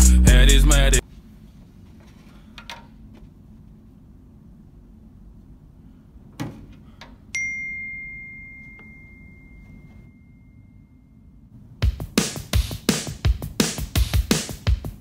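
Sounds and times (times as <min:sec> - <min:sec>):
phone notification ding: 0:07.4 - 0:10.8.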